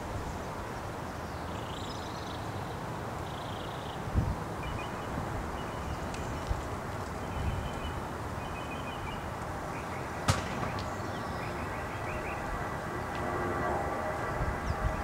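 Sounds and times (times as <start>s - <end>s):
steady rushing noise: 9.0s - 15.0s.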